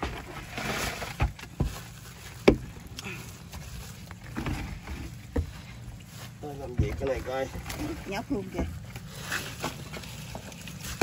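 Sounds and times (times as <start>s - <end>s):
wet leaves and plastic rustling: 0.0s - 11.0s
sharp knocks against boat: 2.4s - 2.7s.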